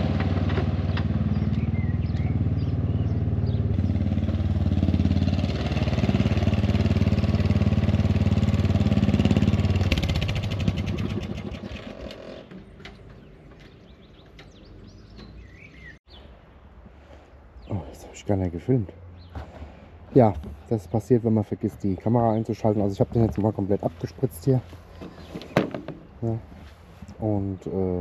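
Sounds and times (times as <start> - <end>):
lawn tractor engine running: 0.0 - 13.6.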